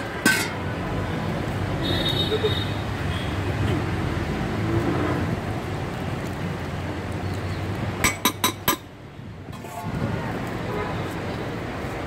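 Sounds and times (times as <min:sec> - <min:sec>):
street noise: 0:00.0 - 0:12.0
metal utensils clinking: 0:00.1 - 0:00.7.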